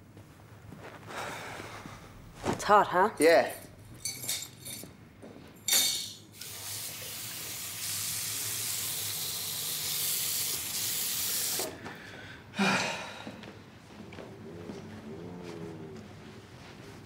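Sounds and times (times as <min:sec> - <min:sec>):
water running: 0:06.0 - 0:11.8.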